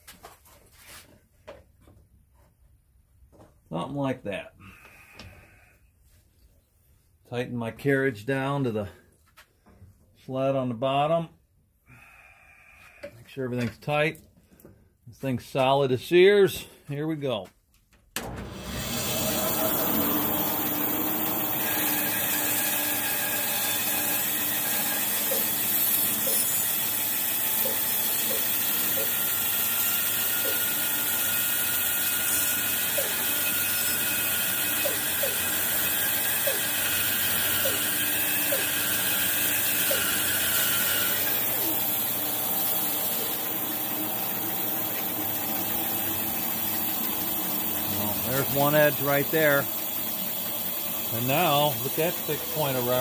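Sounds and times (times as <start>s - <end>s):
band saw cutting log: 18.2s - 53.0s.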